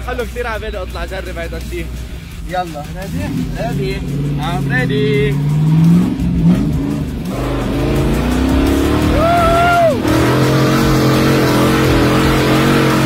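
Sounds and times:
engine revving hard: 3.0 - 13.0
passenger yelling: 9.0 - 10.5.

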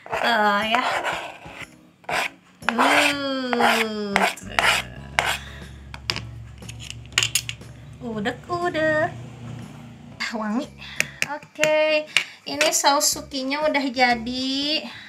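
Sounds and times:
knife scraping cutting board: 0.0 - 5.4
low steady hum: 4.2 - 11.3
tone sliding down in pitch: 4.4 - 10.4.

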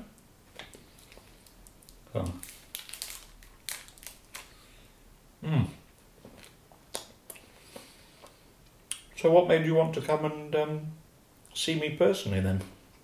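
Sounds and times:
wrapper crinkling: 0.8 - 4.6.

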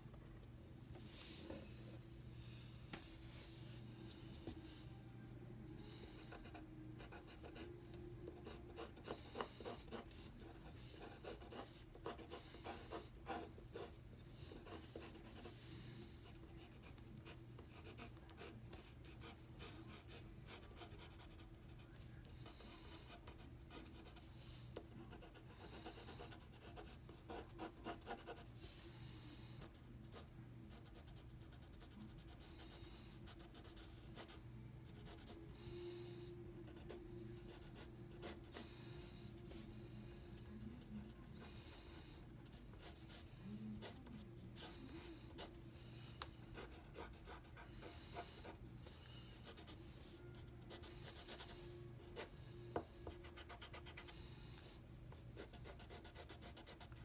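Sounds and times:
pencil scratching on paper: 6.3 - 7.7, 8.3 - 28.8, 40.4 - 45.6, 46.5 - 48.6, 53.0 - 54.2, 55.4 - 57.0.

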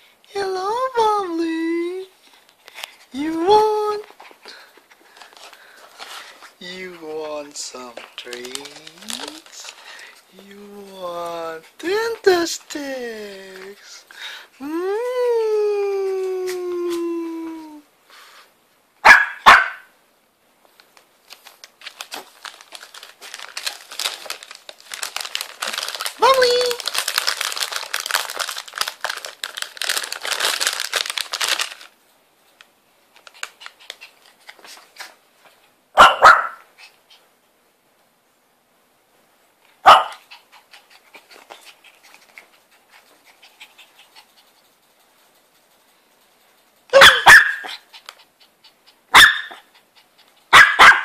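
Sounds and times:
plastic pouch crinkling: 7.8 - 10.2, 21.2 - 32.0
puppy barking: 19.0 - 19.9, 36.0 - 36.7, 39.8 - 40.2, 46.9 - 47.8, 49.1 - 49.7, 50.5 - 51.0
puppy panting: 33.2 - 35.2, 39.9 - 50.6.

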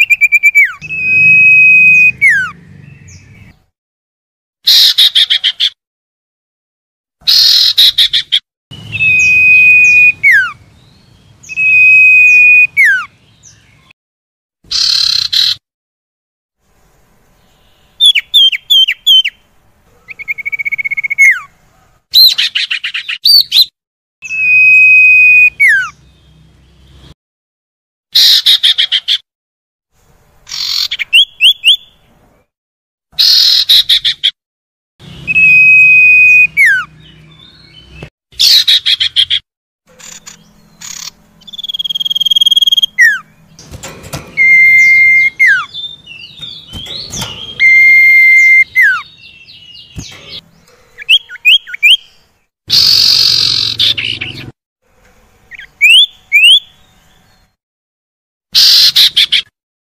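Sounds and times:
bird clear whistles: 0.0 - 2.6, 8.9 - 10.6, 11.5 - 13.1, 35.3 - 37.7, 40.0 - 50.4
bird harsh rasping chatters: 38.4 - 52.0, 52.7 - 54.5.

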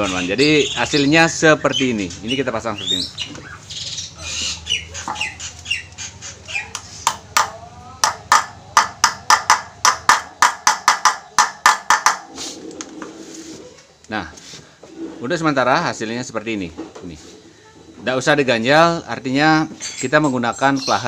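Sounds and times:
hammer tapping metal bearing: 7.0 - 12.3.

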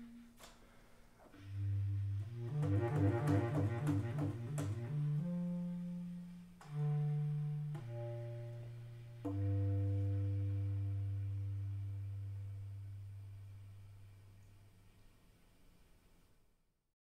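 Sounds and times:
bass clarinet low notes: 0.0 - 14.8.

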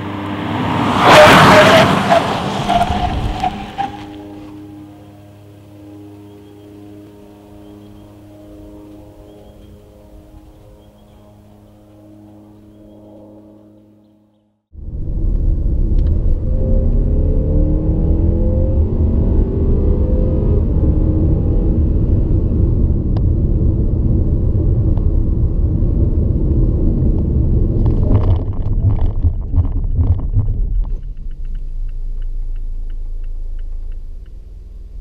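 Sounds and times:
road rumble: 0.0 - 35.0
car engine accelerating: 14.8 - 35.0
light regular ticking: 30.6 - 34.6.

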